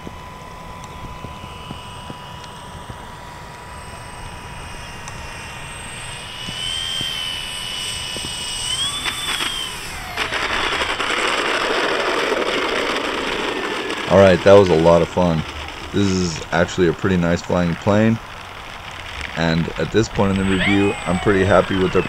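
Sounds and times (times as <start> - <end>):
electric motor whine: 0.0 - 22.0
rushing noise: 18.2 - 22.0.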